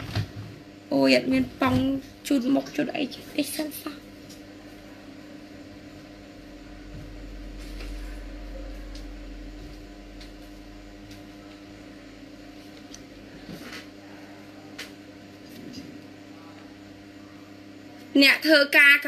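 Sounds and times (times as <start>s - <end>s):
low machine hum: 0.0s - 19.0s
deep rumble: 5.6s - 12.5s.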